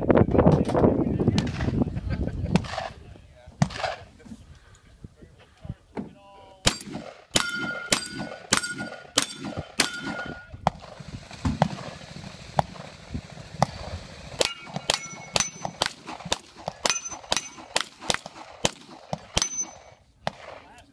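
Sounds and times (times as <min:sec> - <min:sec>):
gunshots: 0:02.6 - 0:03.0, 0:03.6 - 0:04.1, 0:06.6 - 0:20.8
steel target clanging: 0:06.7 - 0:10.6, 0:14.4 - 0:15.9, 0:16.8 - 0:17.8, 0:19.3 - 0:20.0.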